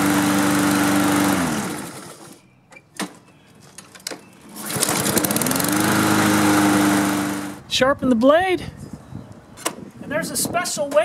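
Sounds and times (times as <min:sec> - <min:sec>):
lawn mower engine running: 0:00.0 - 0:02.4, 0:04.5 - 0:07.6.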